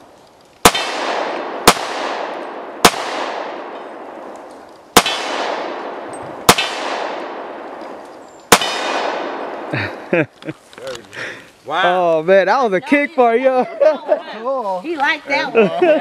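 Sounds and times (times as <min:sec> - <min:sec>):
pistol shots with echo: 0:00.6 - 0:04.3, 0:04.9 - 0:07.8, 0:08.5 - 0:09.7.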